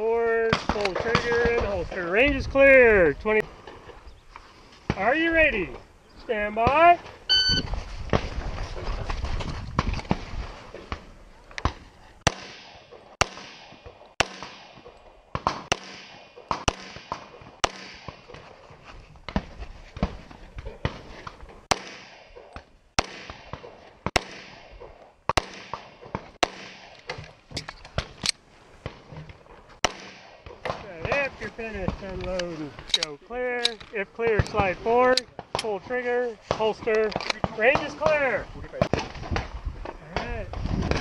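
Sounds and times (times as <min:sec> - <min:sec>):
pistol shots: 0:12.2 - 0:18.2, 0:23.0 - 0:27.0, 0:29.8 - 0:30.8.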